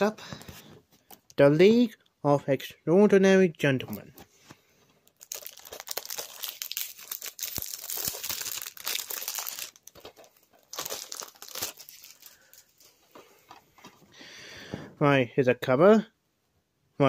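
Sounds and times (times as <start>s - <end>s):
plastic wrapping crinkling and tearing: 5.0s - 13.1s.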